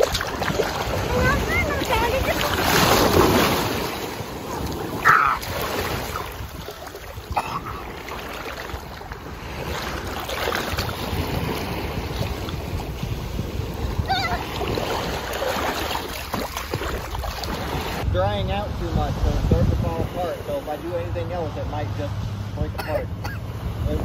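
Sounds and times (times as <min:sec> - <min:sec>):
wind buffeting microphone: 0:00.0 - 0:21.4
small waves breaking in surf: 0:00.0 - 0:24.0
child yelping: 0:05.0 - 0:05.4, 0:14.0 - 0:14.5.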